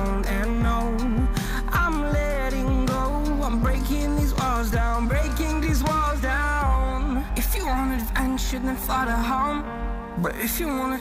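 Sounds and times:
pop song with beat and bass: 0.0 - 11.0.

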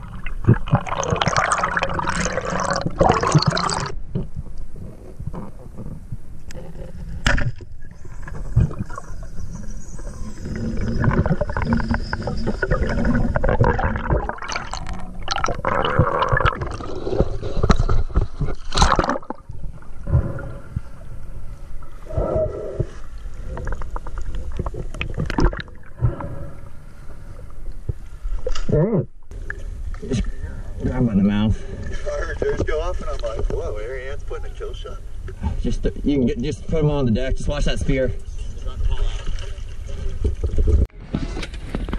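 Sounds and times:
muffled underwater gurgling: 0.0 - 3.9, 7.9 - 21.1.

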